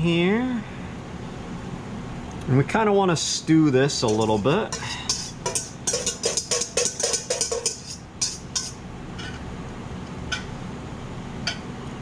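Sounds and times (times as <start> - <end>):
steady low hum: 0.0 - 12.0
whisk clinking against metal bowl: 4.0 - 9.4.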